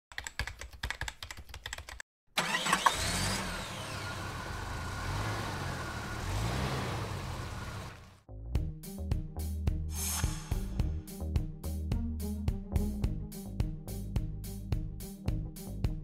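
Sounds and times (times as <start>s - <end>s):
car engine revving sound effect: 2.4s - 8.2s.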